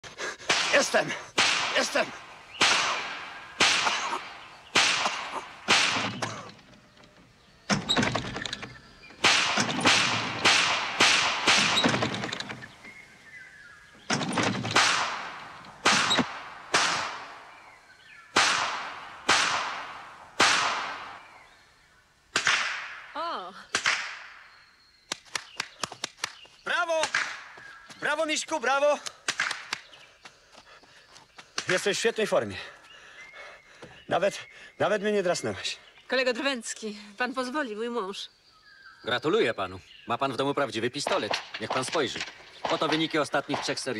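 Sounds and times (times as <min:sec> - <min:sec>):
pistol shots echoing: 0:00.5 - 0:06.4, 0:09.2 - 0:12.1, 0:14.7 - 0:17.6, 0:18.3 - 0:21.4, 0:41.0 - 0:43.9.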